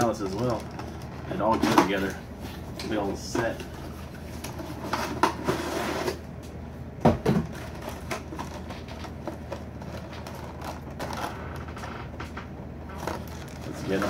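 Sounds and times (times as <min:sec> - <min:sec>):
plastic clicks and crinkles: 0:00.0 - 0:02.2.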